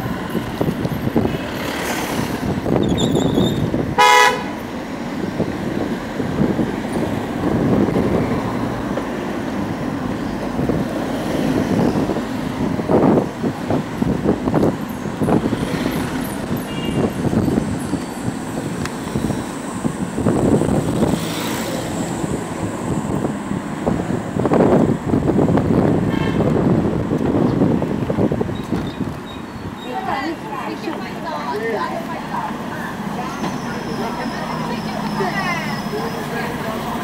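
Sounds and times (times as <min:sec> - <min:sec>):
road traffic noise: 0:00.0 - 0:37.0
vehicle horn toot: 0:03.1 - 0:04.6, 0:16.6 - 0:17.2.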